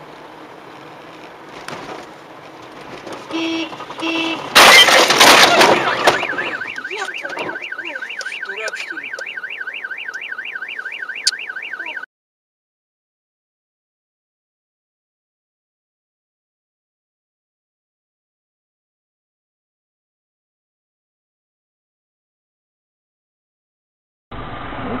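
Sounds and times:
car horn beeps: 0:03.3 - 0:10.4
car alarm warbling: 0:03.3 - 0:12.1
loud collision crash: 0:04.3 - 0:06.6.

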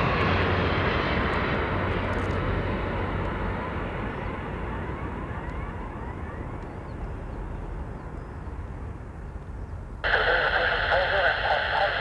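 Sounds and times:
jet engines rumbling: 0:00.0 - 0:12.0
radio speech from scanner: 0:10.0 - 0:12.0.

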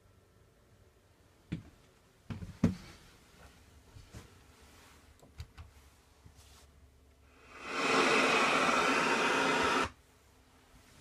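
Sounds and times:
radio static hiss: 0:07.5 - 0:10.0.

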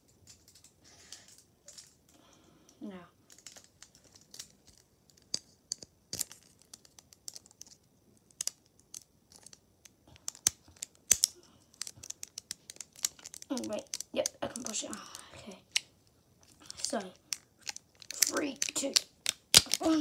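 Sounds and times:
cardboard snapping: 0:19.2 - 0:20.0.

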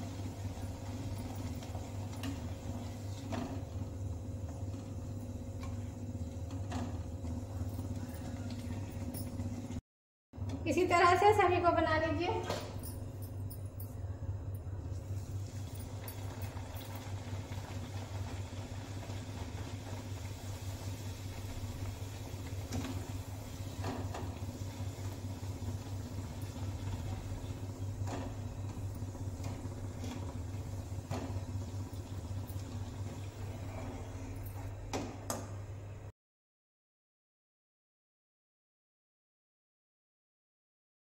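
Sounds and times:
deep-frying oil sizzling: 0:15.0 - 0:33.5.

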